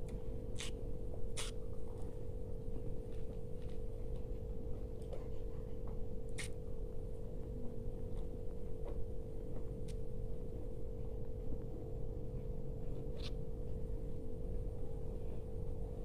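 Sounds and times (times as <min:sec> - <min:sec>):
steady low hum: 0:00.0 - 0:16.0
person eating mouth noises: 0:01.4 - 0:01.6.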